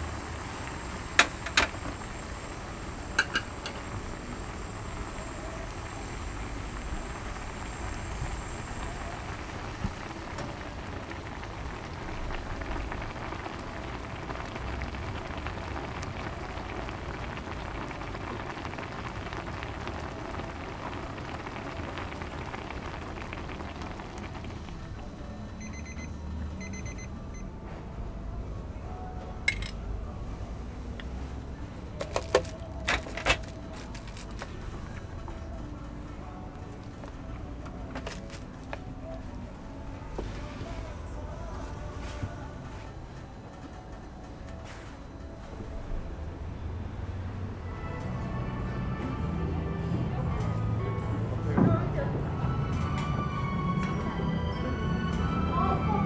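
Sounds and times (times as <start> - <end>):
water boiling in a pot: 0.0 - 27.1, 31.0 - 41.6
electronic beeps: 24.9 - 27.5.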